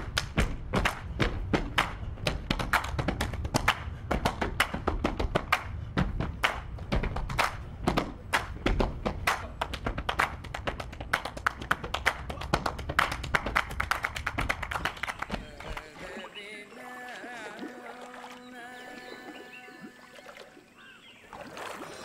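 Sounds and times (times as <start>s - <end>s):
rhythmic percussion groove: 0.0s - 15.9s.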